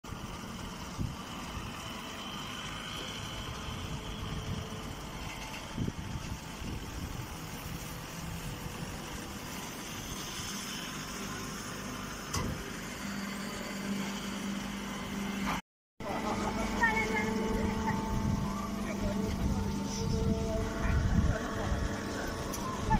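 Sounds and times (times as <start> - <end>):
baler machine hum and rumble: 0.0 - 22.9
steady low tone: 16.0 - 22.9.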